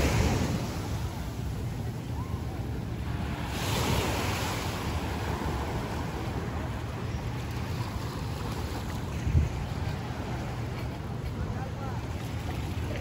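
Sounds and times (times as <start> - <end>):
small waves washing on sand: 0.0 - 13.0
wind rumble on microphone: 7.8 - 11.6.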